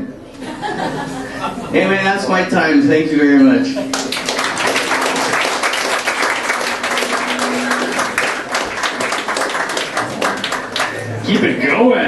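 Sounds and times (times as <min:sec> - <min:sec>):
audience applauding: 0:03.9 - 0:11.5.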